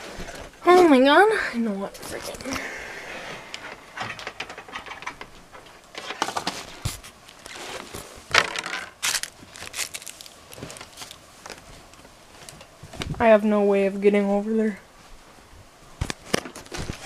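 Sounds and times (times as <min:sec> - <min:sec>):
objects rustling and clattering: 0:01.8 - 0:13.2, 0:16.0 - 0:17.0.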